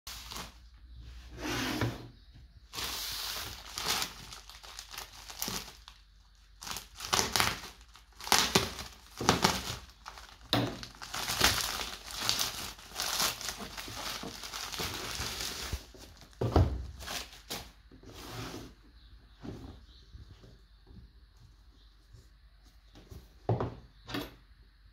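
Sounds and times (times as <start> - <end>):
plastic bag crinkling and tearing: 0.1 - 0.6, 2.7 - 17.7.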